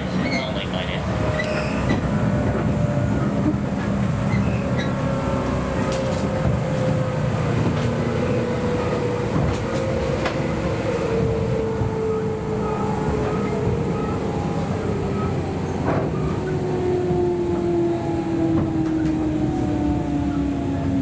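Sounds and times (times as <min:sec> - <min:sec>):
train wheels rumbling: 0:00.0 - 0:21.0.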